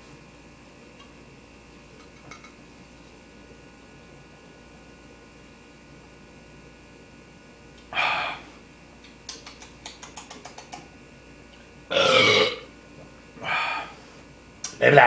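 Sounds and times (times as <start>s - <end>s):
man gasping: 8.0s - 8.5s, 13.4s - 14.1s.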